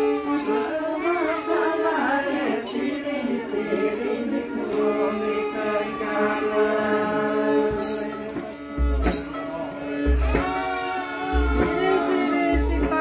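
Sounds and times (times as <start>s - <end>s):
wavering singing: 0.0s - 13.0s
deep drum beat: 7.7s - 13.0s
hand drum strikes: 7.7s - 13.0s.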